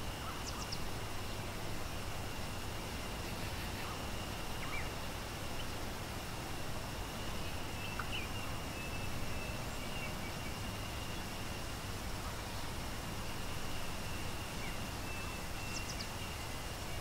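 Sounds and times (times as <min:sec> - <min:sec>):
bird chirps: 0:03.2 - 0:05.8, 0:07.2 - 0:11.6, 0:12.2 - 0:17.0.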